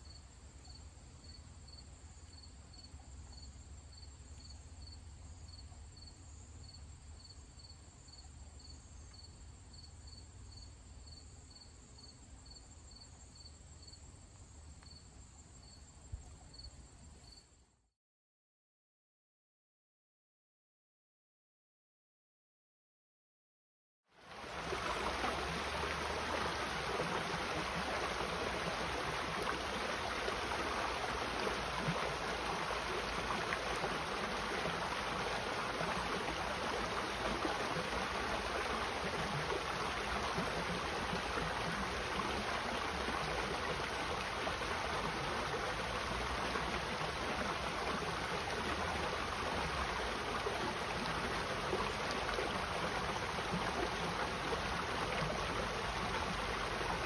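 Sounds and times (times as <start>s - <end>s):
creek water running over rocks: 24.2s - 57.0s.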